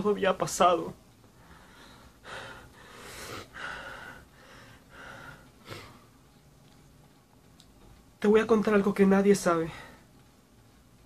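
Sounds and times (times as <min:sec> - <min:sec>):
man gasping breaths: 0:01.4 - 0:06.1.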